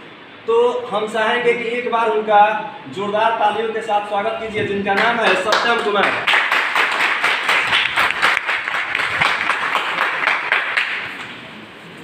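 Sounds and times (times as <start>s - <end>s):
small audience applauding: 5.0s - 11.5s.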